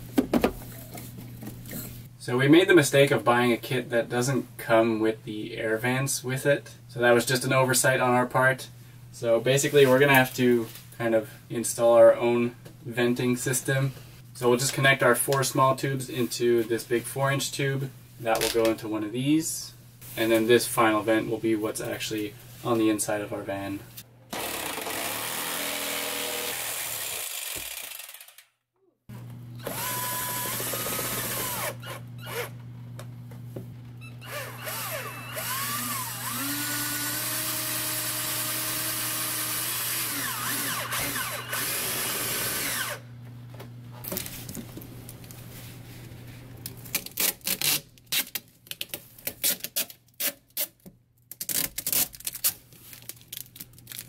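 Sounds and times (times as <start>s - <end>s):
jigsaw cutting wood: 24.3s - 28.5s, 29.6s - 32.5s, 34.2s - 43.0s
cordless drill driving screws: 29.6s - 32.5s, 34.2s - 43.0s
foil duct crinkling: 46.6s - 50.7s, 51.3s - 54.0s.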